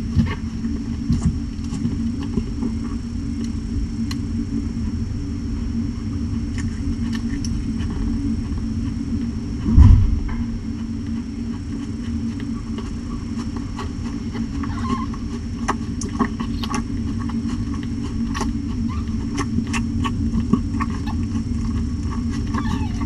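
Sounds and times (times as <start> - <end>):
wet licking and suckling clicks: 3.4 - 4.3, 6.4 - 9.3, 10.8 - 23.0.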